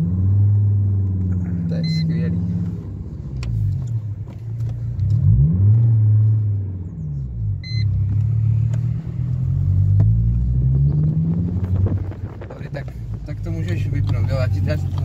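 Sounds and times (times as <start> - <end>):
car engine rumbling: 0.0 - 15.0
short electronic beep: 1.8 - 2.2, 7.6 - 7.9.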